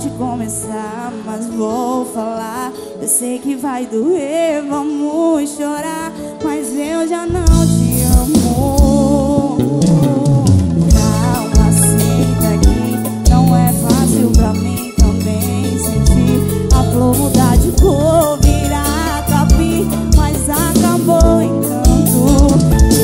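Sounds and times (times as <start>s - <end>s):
woman singing: 0.0s - 23.0s
heavy bass line: 7.3s - 23.0s
drums: 7.4s - 23.0s.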